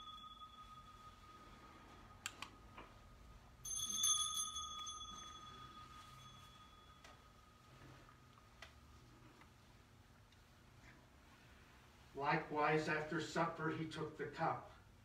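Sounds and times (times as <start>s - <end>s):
small bell ringing: 0.0s - 2.2s, 3.6s - 7.6s.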